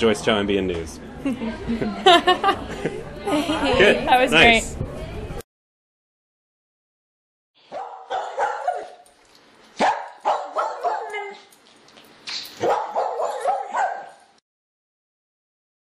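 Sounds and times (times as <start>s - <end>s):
dog yipping and barking: 7.7s - 9.1s, 9.8s - 11.5s, 12.6s - 14.3s.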